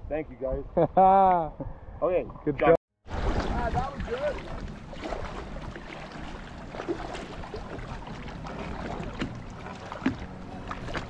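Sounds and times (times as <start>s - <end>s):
river water along boat hull: 2.4s - 11.0s
small knocks from boat: 6.8s - 11.0s.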